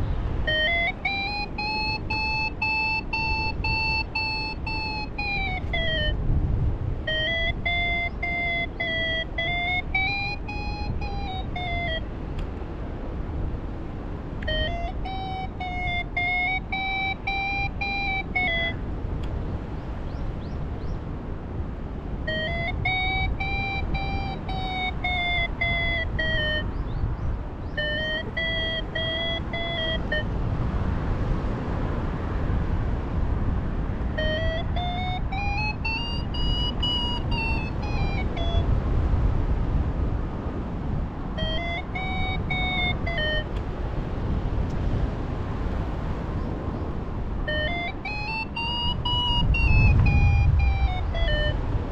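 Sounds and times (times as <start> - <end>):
wind on microphone: 0.0 - 51.9
variometer climb tone: 0.4 - 6.2, 7.0 - 12.1, 14.4 - 18.8, 22.3 - 26.7, 27.7 - 30.4, 34.1 - 38.8, 41.4 - 43.6, 47.4 - 51.9.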